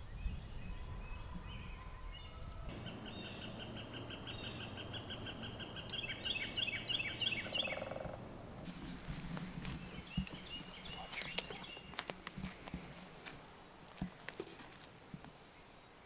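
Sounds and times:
songbirds singing: 0.0 - 12.7.

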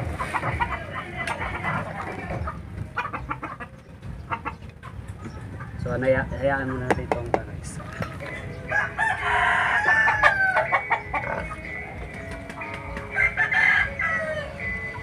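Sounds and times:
rooster crowing: 8.7 - 11.3, 13.0 - 14.9.

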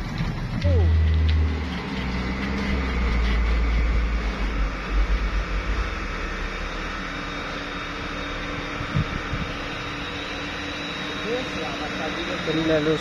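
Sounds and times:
deep engine rumble: 0.0 - 13.0
faint steady engine drone: 0.0 - 13.0.

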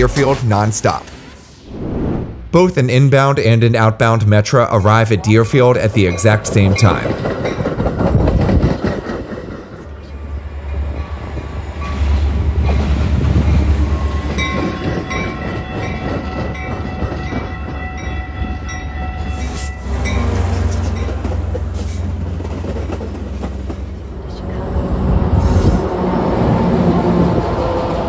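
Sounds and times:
diesel locomotive engine hum: 3.4 - 28.0
train wheels rumbling over rails: 5.8 - 28.0.

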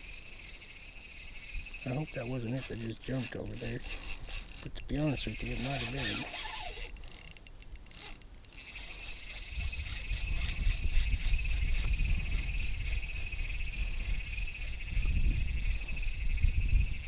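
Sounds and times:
fishing reel cranking: 0.0 - 17.0
high-pitched hum: 1.5 - 7.0.

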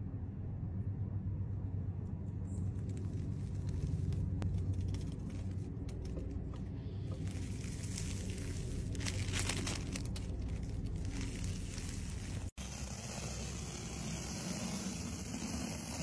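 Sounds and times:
steady low rumble: 0.0 - 16.0
foam slime crackling and popping: 2.7 - 6.4, 7.0 - 16.0.

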